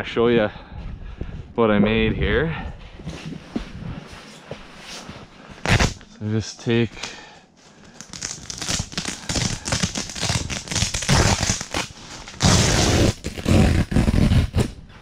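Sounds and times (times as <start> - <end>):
tent fabric rustling and tearing: 5.6 - 6.0, 8.0 - 14.7.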